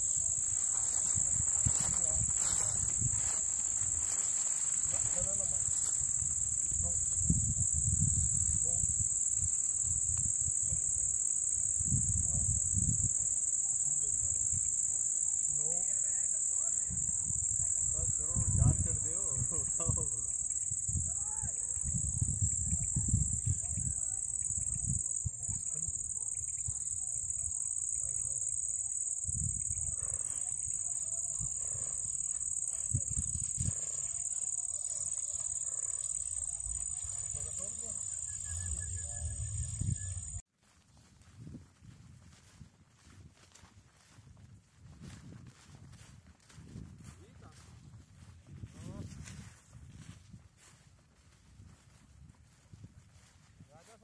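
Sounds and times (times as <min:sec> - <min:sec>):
crickets chirring: 0:00.0 - 0:40.4
insects droning: 0:00.0 - 0:40.4.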